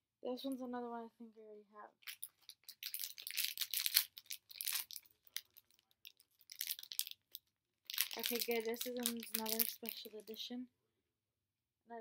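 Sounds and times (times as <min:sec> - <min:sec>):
wrapper tearing and crinkling: 0:02.0 - 0:10.4.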